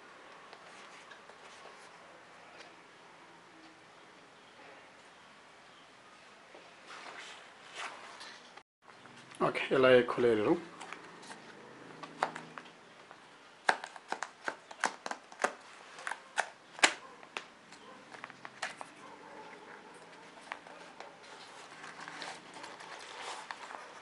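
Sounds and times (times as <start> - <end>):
cardboard crackling and snapping: 13.6 - 19.0, 20.4 - 24.0
card and paper rustling: 17.8 - 24.0.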